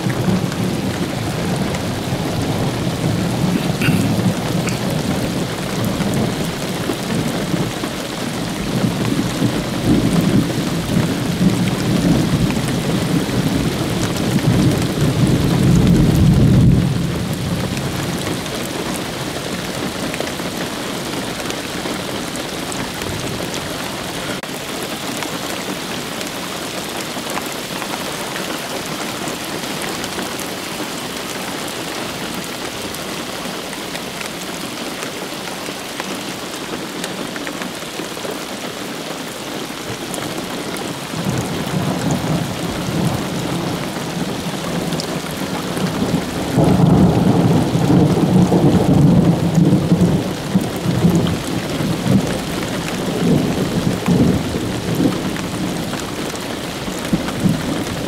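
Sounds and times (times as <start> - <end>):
thunder rumbling: 0.0 - 18.6, 41.0 - 58.0
steady rain falling: 0.0 - 58.0.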